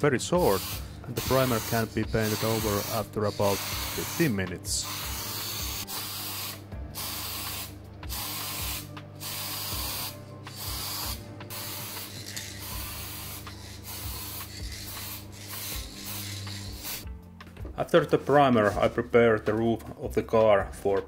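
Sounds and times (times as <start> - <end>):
aerosol spray can hissing: 0.4 - 17.1.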